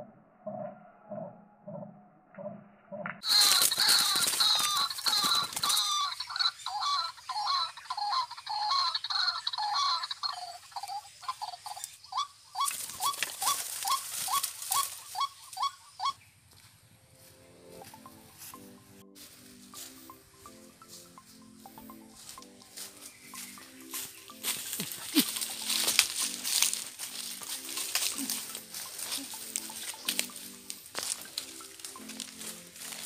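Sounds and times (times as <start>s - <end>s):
rail bird calls through phone speaker: 3.2s - 16.2s.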